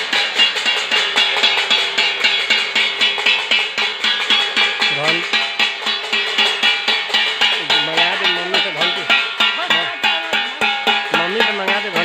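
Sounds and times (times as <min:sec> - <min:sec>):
metal plates beaten with spoons: 0:00.0 - 0:12.0
voices: 0:04.1 - 0:12.0.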